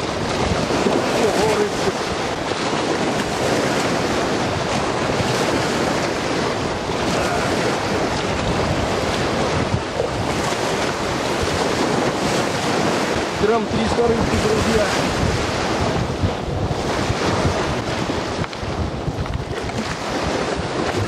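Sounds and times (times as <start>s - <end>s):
waves washing up concrete bank: 0.0s - 21.0s
wind buffeting microphone: 0.0s - 21.0s.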